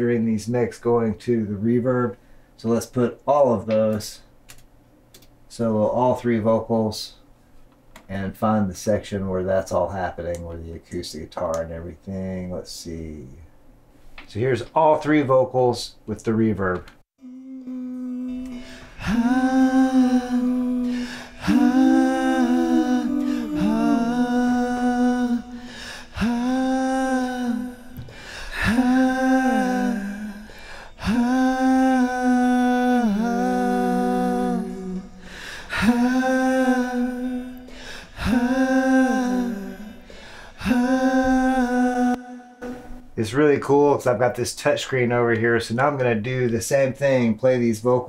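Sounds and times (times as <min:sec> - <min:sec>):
voices singing in harmony with reverb: 0:17.2 - 0:43.1.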